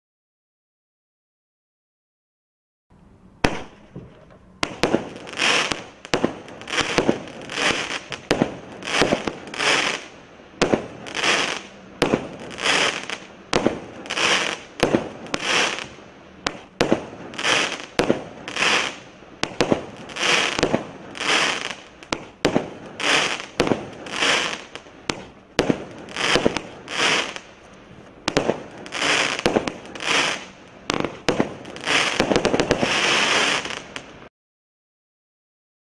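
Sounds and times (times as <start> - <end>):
crackling fireworks stars: 3.0 - 34.3
fireworks shots: 3.4 - 34.3.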